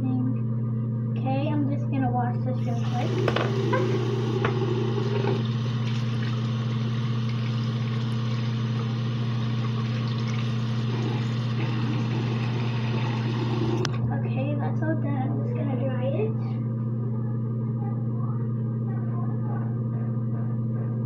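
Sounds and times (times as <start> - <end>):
constant low hum: 0.0 - 21.0
tap water running into sink: 2.6 - 14.0.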